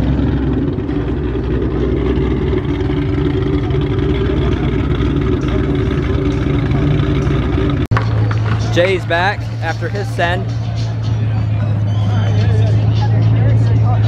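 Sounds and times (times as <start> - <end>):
car engine revving high: 0.0 - 14.0.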